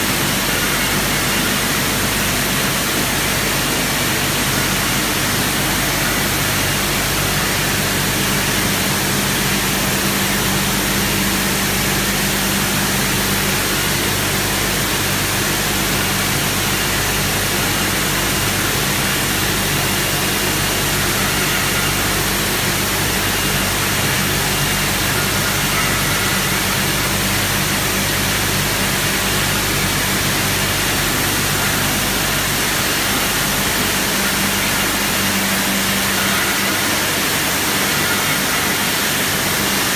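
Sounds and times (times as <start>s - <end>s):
bottling machine running with low hum: 0.0s - 39.9s.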